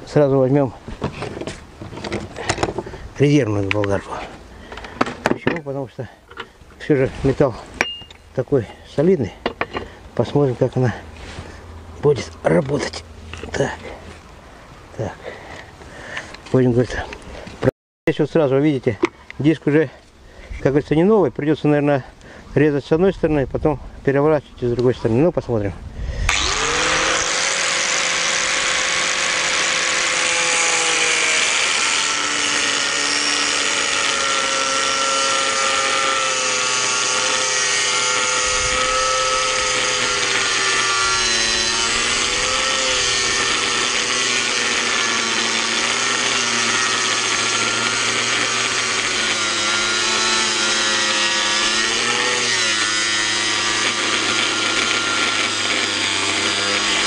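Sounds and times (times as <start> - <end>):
angle grinder cutting steel: 26.3 - 57.0.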